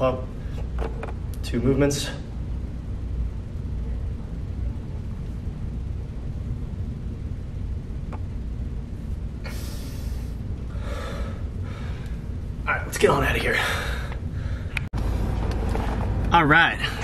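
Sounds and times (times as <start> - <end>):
low room rumble: 0.0 - 17.0
short breathy hisses: 9.4 - 11.2.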